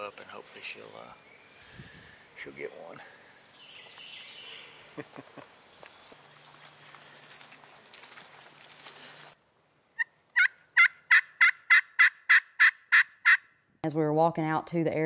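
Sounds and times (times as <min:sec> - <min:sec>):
turkey yelps: 0:10.0 - 0:13.5.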